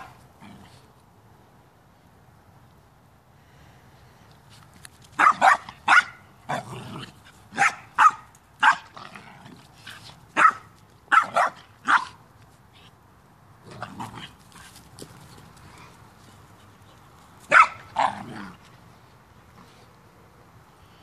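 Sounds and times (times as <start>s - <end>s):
dog play barks: 0.0s - 0.9s, 5.1s - 12.2s, 17.4s - 18.7s.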